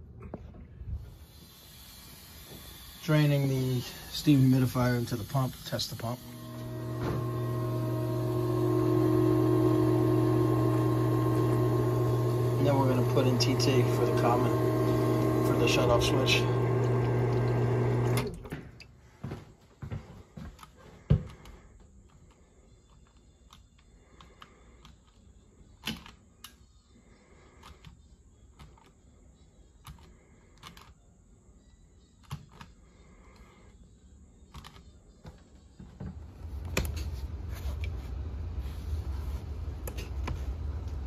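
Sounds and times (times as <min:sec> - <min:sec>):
pump motor hum: 0:01.0 - 0:18.8.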